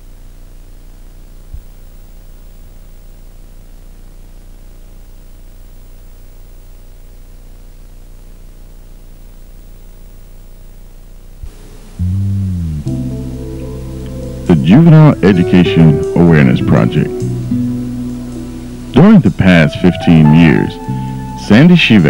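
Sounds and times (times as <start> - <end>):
low mains hum: 0.0 - 22.0
videotape hiss: 0.0 - 22.0
short low thump: 12.0 - 13.0.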